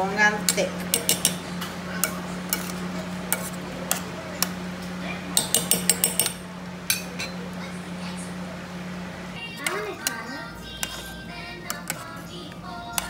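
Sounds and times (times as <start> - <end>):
steady low hum: 0.0 - 13.0
metal spoon clinking on pot: 0.5 - 1.4, 5.4 - 7.4.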